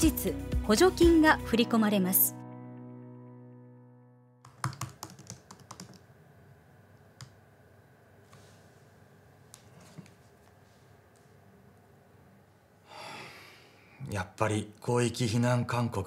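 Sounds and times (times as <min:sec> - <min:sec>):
background music: 0:00.0 - 0:04.7
typing on laptop keyboard: 0:04.4 - 0:06.1.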